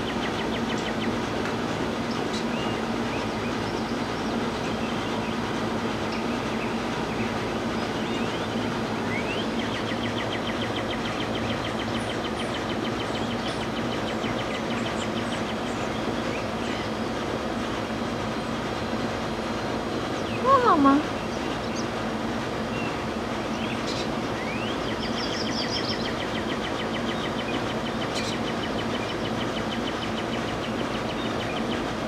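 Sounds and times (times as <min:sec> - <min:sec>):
small birds chirping: 0:00.0 - 0:17.3, 0:19.6 - 0:22.0, 0:22.6 - 0:32.0
mechanical drone with low hum: 0:00.0 - 0:32.0
bird trill: 0:22.8 - 0:31.8.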